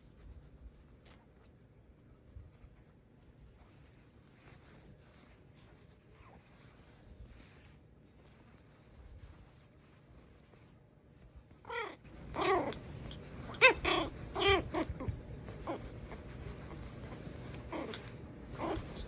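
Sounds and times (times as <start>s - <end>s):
puppy yipping and barking: 11.6s - 19.0s.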